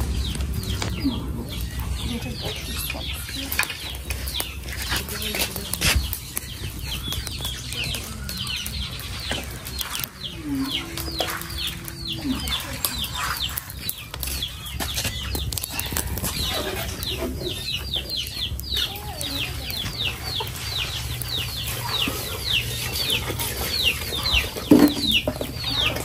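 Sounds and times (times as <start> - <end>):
chicks peeping: 0.0 - 26.0
scattered knocks: 24.6 - 25.8.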